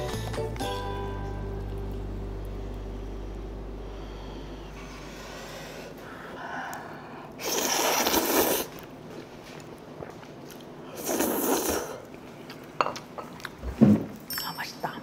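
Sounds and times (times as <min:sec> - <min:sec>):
person slurping noodles: 0:07.4 - 0:08.8, 0:10.8 - 0:12.1.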